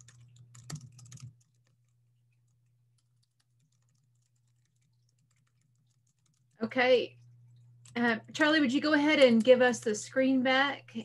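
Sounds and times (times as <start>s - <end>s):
computer keyboard typing: 0.0s - 6.7s
low steady hum: 0.0s - 11.0s.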